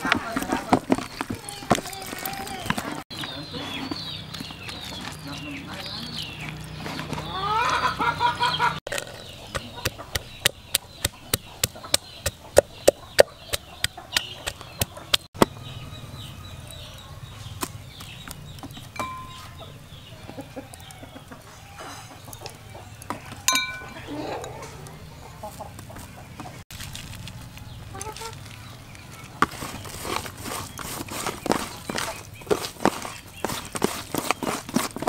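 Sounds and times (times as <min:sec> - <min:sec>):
chicken clucking: 0:02.3 - 0:15.3, 0:19.2 - 0:26.6, 0:27.6 - 0:28.4.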